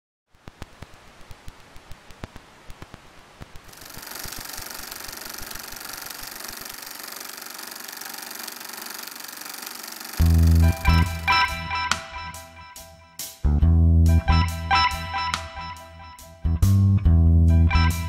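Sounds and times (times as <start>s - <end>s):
film projector clicking: 3.7s - 11.3s
film projector whirring: 3.7s - 11.3s
guitar music: 10.2s - 18.0s.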